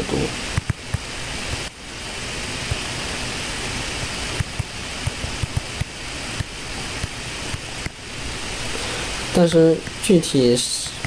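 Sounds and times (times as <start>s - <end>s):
steady hiss: 0.0s - 11.0s
stylus tapping on a screen: 4.4s - 8.0s.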